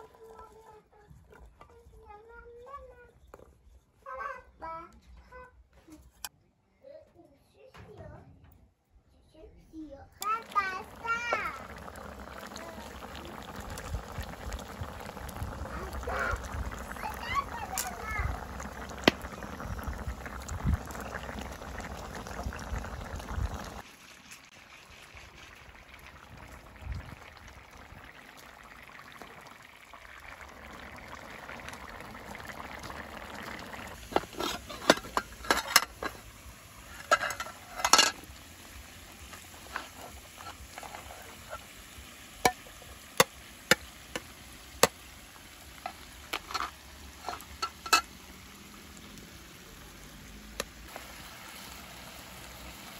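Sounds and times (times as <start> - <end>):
stew bubbling in a pan: 0.0 - 2.4, 10.2 - 52.9
metal spoon scraping metal pot: 34.0 - 38.2, 46.3 - 48.1.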